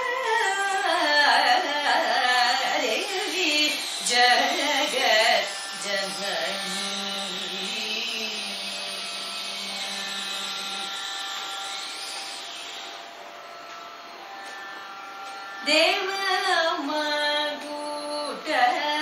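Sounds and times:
buzzing drone: 0:00.0 - 0:19.0.

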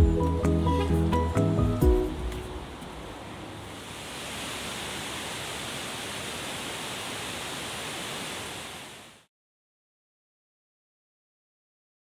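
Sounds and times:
waterfall rushing: 0:02.1 - 0:09.3.

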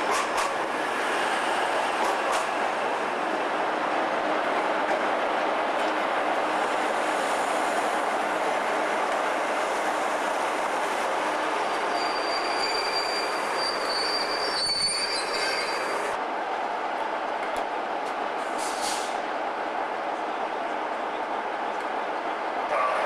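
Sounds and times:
train wheels rumbling on rail: 0:00.0 - 0:23.0
high wheel squeal: 0:11.6 - 0:16.1.

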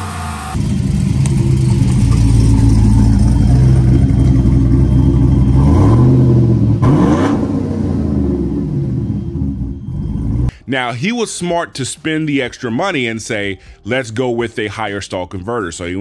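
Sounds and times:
truck engine idling and revving: 0:00.0 - 0:10.5.

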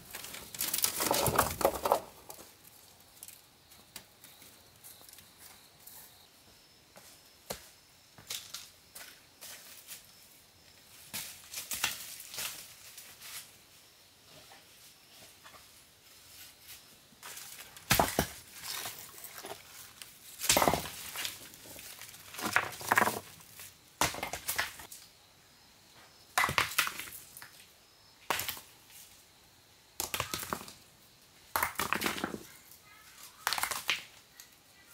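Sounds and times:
scraping crunches: 0:00.0 - 0:03.4, 0:17.2 - 0:24.9.

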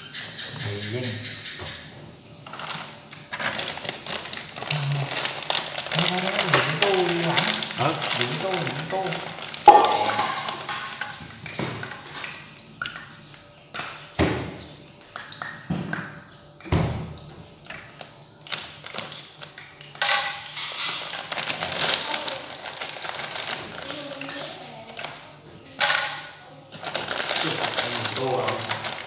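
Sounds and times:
plastic bag of macaroni crinkling: 0:02.4 - 0:11.9, 0:18.4 - 0:25.3, 0:26.7 - 0:29.0.

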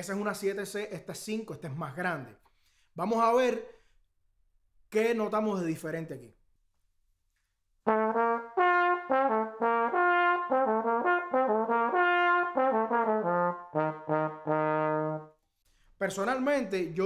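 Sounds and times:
solo trombone: 0:07.8 - 0:15.4.

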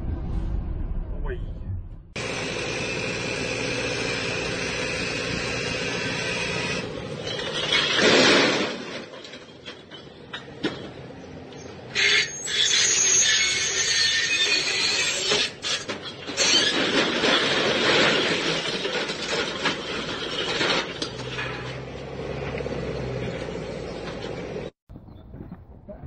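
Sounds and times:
bricks clattering crash: 0:07.2 - 0:11.0, 0:15.8 - 0:21.9
metal squealing and scraping: 0:11.9 - 0:22.0.

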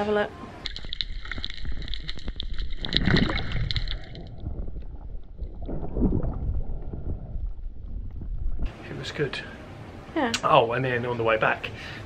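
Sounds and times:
muffled water sloshing underwater: 0:00.5 - 0:08.8
rapid crackling clicks: 0:00.6 - 0:04.5.

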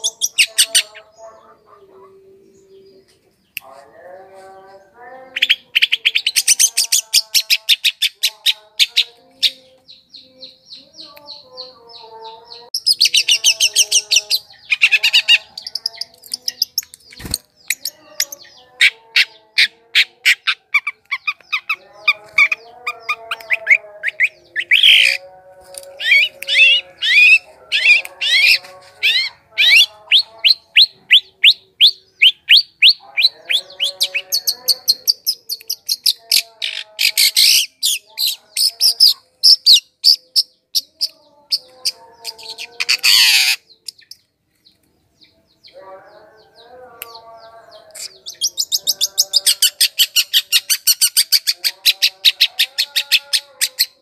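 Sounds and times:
fast buzzy bird trill: 0:12.8 - 0:25.2, 0:26.0 - 0:39.9.

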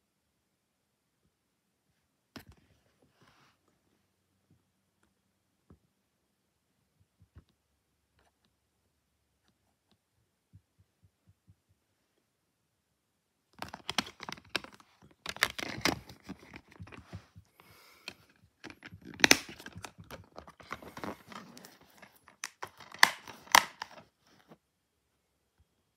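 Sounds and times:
plastic case snapping: 0:13.6 - 0:17.0, 0:18.1 - 0:21.4, 0:22.3 - 0:24.0
plastic case clicking and creaking: 0:13.6 - 0:17.4, 0:18.0 - 0:24.0.

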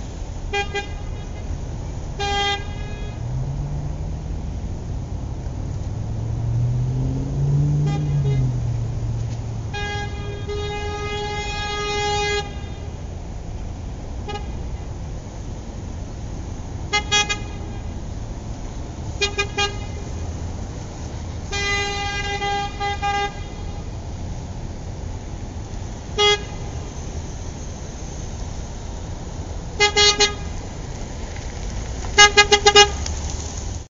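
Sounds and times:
car horn honking: 0:00.5 - 0:03.4, 0:07.6 - 0:13.0, 0:14.2 - 0:14.8, 0:16.9 - 0:18.0, 0:19.1 - 0:20.2, 0:21.5 - 0:24.0, 0:26.2 - 0:27.1, 0:29.8 - 0:30.6, 0:32.2 - 0:33.0.

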